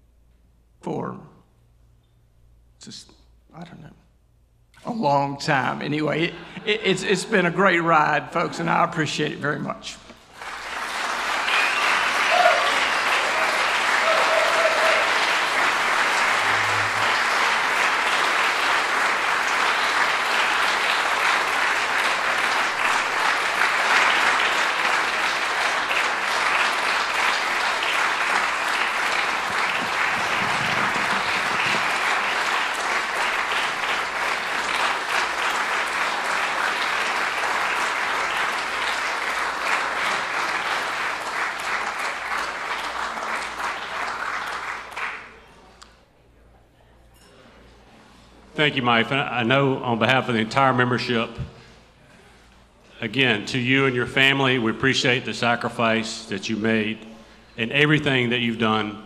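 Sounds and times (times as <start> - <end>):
audience applauding: 10.2 - 45.5.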